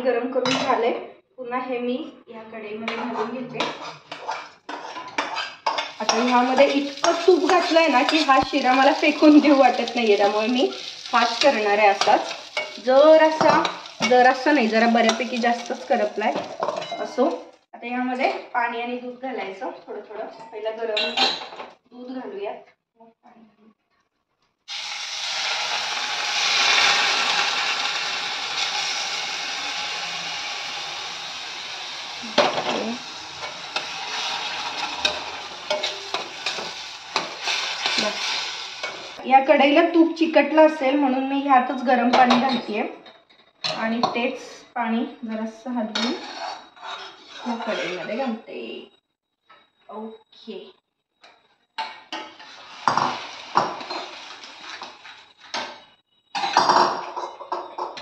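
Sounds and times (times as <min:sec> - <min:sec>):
spatula scraping steel pan: 0:02.9 - 0:09.8, 0:33.4 - 0:39.2, 0:45.9 - 0:48.2
milk sizzling in pan: 0:03.9 - 0:17.6, 0:24.7 - 0:39.2, 0:52.1 - 0:58.0.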